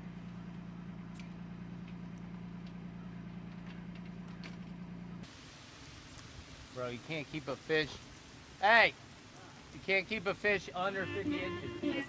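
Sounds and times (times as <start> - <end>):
low mechanical hum: 0.0 - 7.2.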